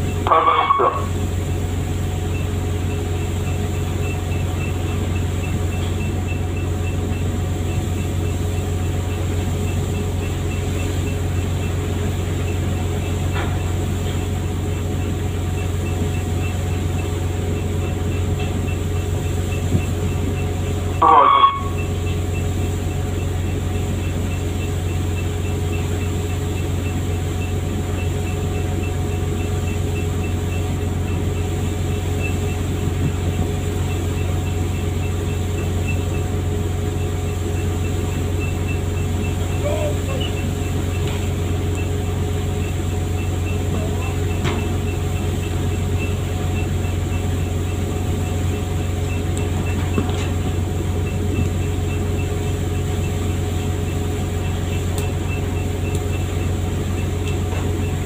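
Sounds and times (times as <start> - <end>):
boat engine droning: 0.0 - 58.0.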